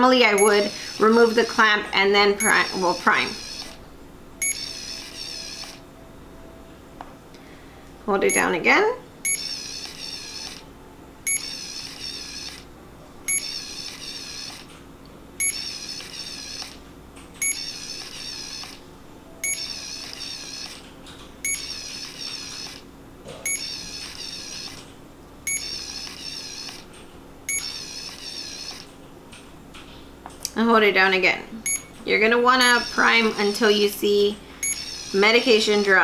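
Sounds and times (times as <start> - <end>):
pump high wavering whir: 0.0 - 1.8, 2.4 - 3.8, 4.4 - 5.8, 9.2 - 12.7, 13.3 - 14.7, 15.4 - 16.8, 17.4 - 18.8, 19.4 - 26.9, 27.5 - 28.9
infusion pump click: 15.4 - 18.8.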